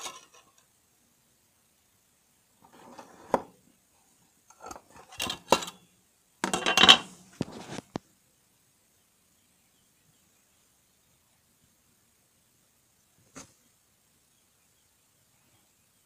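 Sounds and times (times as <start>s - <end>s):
metal box clicking and clanking: 4.6s - 5.8s, 6.4s - 7.1s.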